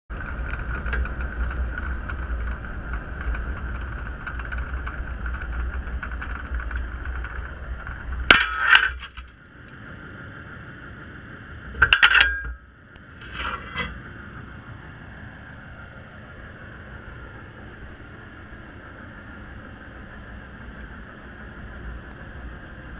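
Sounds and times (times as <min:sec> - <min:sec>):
low underwater rumble with hum: 0:00.1 - 0:22.9
sharp metallic clinks and knocks: 0:11.8 - 0:12.6.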